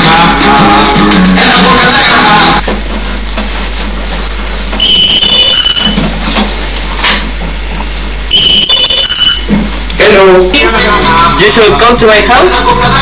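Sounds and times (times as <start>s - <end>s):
telephone ringing: 4.8s - 6.0s, 8.3s - 9.5s.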